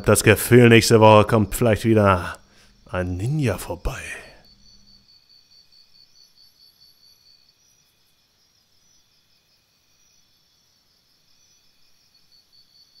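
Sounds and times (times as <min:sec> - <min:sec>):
faint insect chirping: 0:00.0 - 0:13.0.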